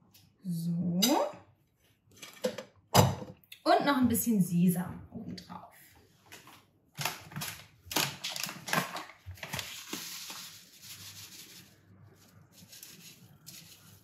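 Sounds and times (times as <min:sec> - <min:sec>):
paper bag crinkling: 0:07.0 - 0:14.0.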